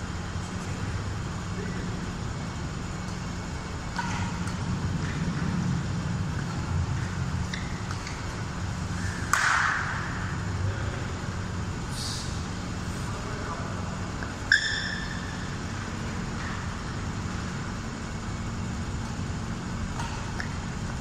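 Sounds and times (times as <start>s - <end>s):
steady low hum: 0.0s - 21.0s
racket hitting shuttlecock: 3.9s - 5.6s, 6.3s - 8.5s, 9.1s - 10.4s, 19.9s - 20.9s.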